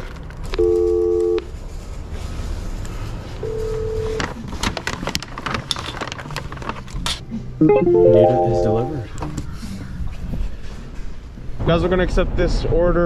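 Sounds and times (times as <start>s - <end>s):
two-note telephone tone: 0.6s - 1.4s, 7.6s - 9.1s.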